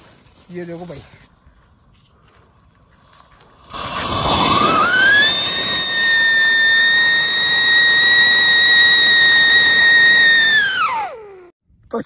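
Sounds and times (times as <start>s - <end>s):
firework hiss: 3.6s - 10.8s
firework whistling: 3.6s - 11.5s.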